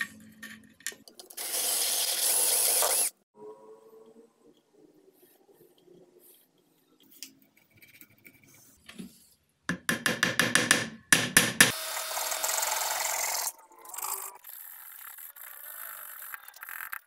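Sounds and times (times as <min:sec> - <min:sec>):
hammer tapping wooden plug: 0:09.7 - 0:11.7.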